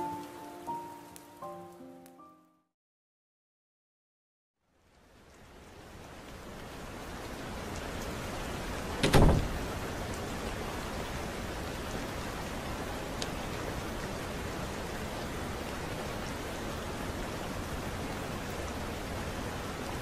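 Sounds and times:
steady rain: 0.0s - 2.1s, 4.6s - 20.0s
sudden loud thump: 9.0s - 9.6s.

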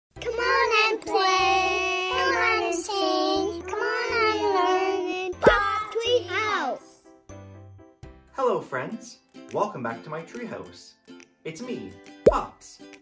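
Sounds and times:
high child-like voice singing: 0.2s - 6.8s.

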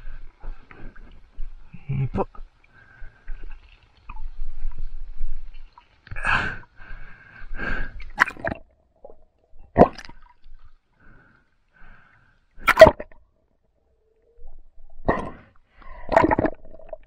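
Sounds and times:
water gurgling and splashing: 8.1s - 10.7s, 14.4s - 17.0s.

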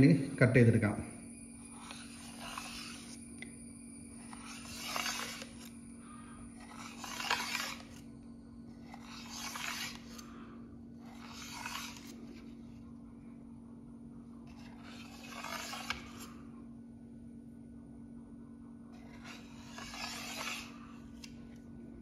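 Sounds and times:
knife scraping metal plate: 1.7s - 3.3s, 4.2s - 8.1s, 8.7s - 10.3s, 11.0s - 12.4s, 14.7s - 16.4s, 19.0s - 20.9s
knife cutting through pudding: 4.1s - 5.8s, 6.5s - 8.1s, 8.7s - 10.3s, 19.0s - 20.8s.

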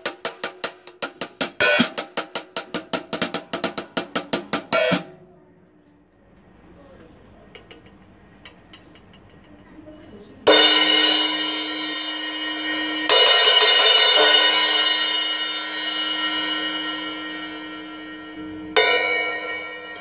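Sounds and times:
cymbal struck with drumstick: 0.0s - 5.2s, 10.5s - 20.0s.

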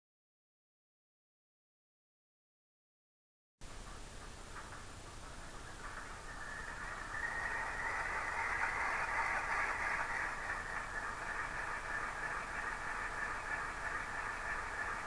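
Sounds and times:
model locomotive diesel engine sound: 3.6s - 15.0s.

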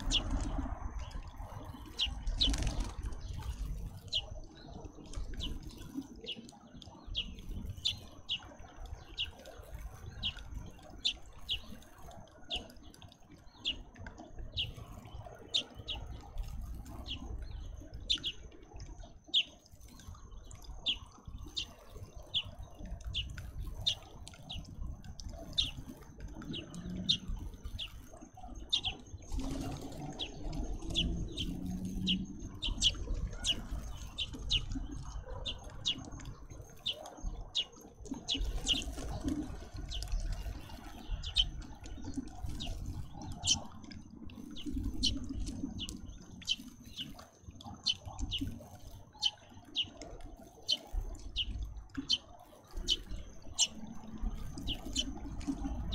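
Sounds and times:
sparrow chirping: 0.0s - 18.5s, 19.2s - 19.6s, 20.8s - 43.8s, 44.4s - 50.0s, 50.6s - 55.9s
low rushing background: 22.3s - 47.1s.

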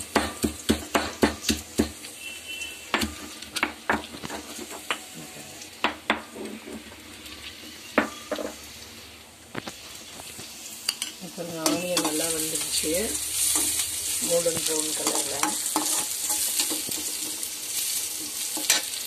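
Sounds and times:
stone pestle pounding in mortar: 0.0s - 2.0s
onions sizzling in oil: 0.0s - 19.0s.

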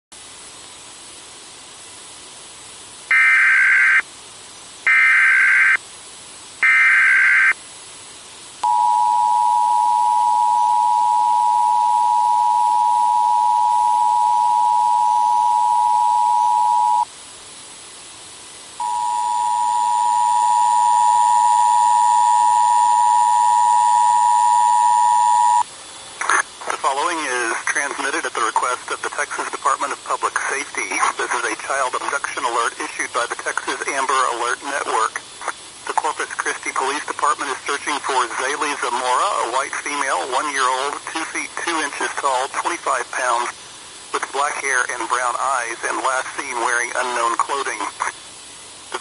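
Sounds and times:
warbling data tones: 3.1s - 4.0s, 8.6s - 17.1s, 18.8s - 25.6s
two-tone attention signal: 8.6s - 17.1s, 18.8s - 25.6s.

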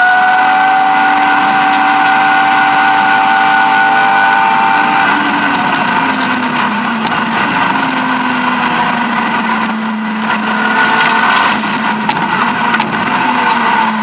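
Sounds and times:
car engine revving from inside cabin: 0.0s - 8.0s.

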